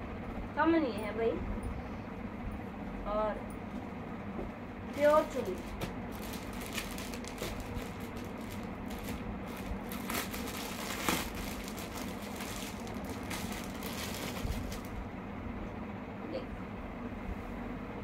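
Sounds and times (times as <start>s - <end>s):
plastic packaging crinkling: 4.9s - 15.0s.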